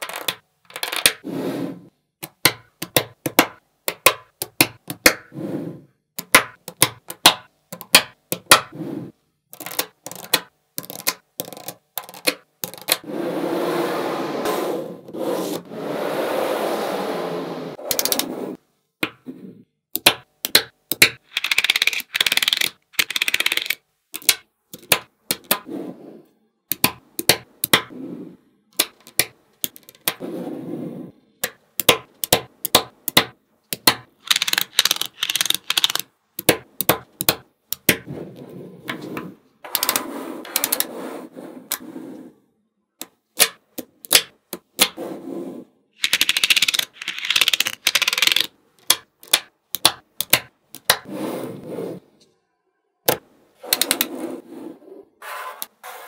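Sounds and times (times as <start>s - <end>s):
magnetic balls clicking: 0.0s - 1.2s, 9.5s - 13.0s, 19.9s - 25.7s, 26.7s - 27.9s, 28.7s - 30.2s, 31.4s - 38.1s, 46.0s - 51.1s.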